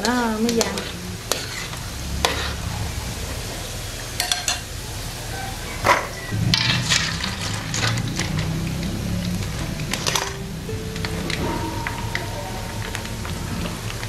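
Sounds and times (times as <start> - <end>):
pasta sizzling in hot oil: 0.0 - 2.5.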